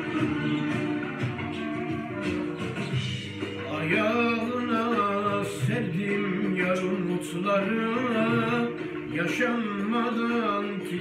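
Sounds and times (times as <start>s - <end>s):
backing music: 0.0s - 11.0s
man singing: 3.6s - 11.0s.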